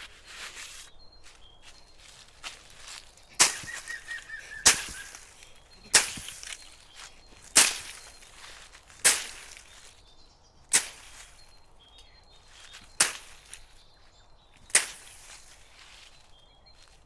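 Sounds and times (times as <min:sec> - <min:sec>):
blade chopping vegetation: 0:03.3 - 0:08.3, 0:08.9 - 0:09.9, 0:10.7 - 0:11.2, 0:12.9 - 0:13.6, 0:14.7 - 0:15.3.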